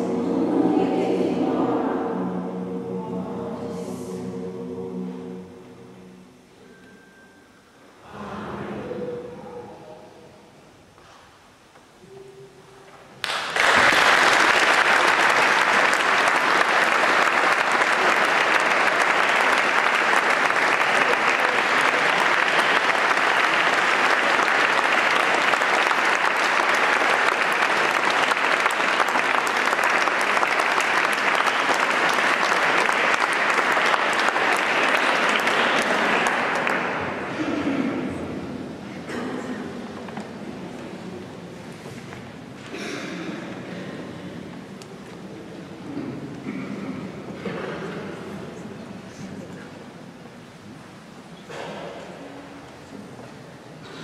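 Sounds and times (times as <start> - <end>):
audience applauding: 13.2 - 37.5.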